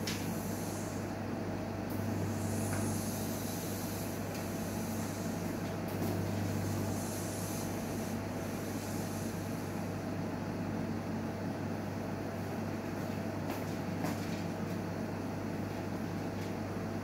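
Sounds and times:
steam autoclave humming and hissing: 0.0s - 12.0s.

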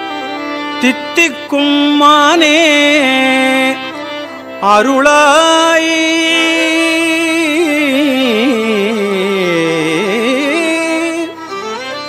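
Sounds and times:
steady drone: 2.5s - 12.0s.

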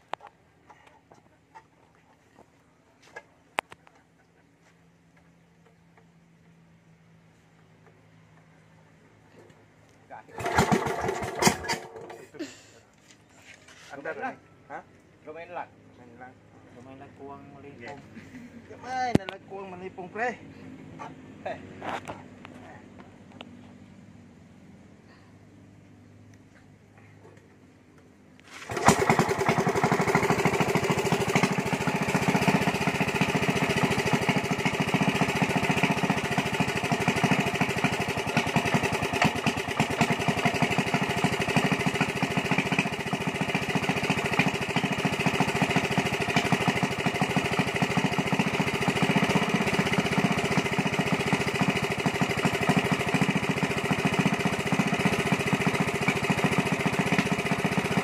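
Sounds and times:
small gasoline engine running: 10.3s - 12.5s, 28.5s - 58.0s.

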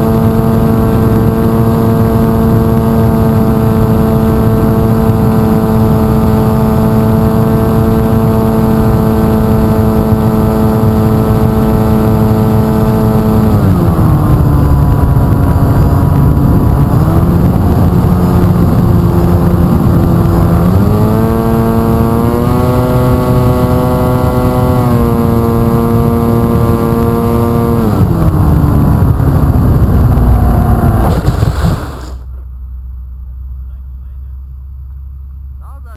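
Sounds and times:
wind rush: 0.0s - 32.2s
plane touching down in snow: 29.4s - 32.4s.

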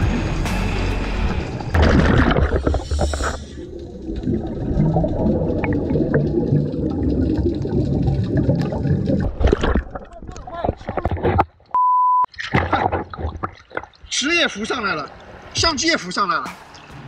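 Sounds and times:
low underwater rumble: 1.2s - 11.2s
scuba bubbles rushing: 1.7s - 11.2s
splash breaking water surface: 1.8s - 3.5s.

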